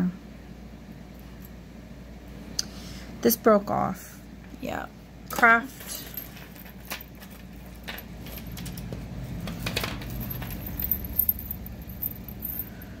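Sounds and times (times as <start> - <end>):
jewelry clinking and rattling: 5.4 - 13.0.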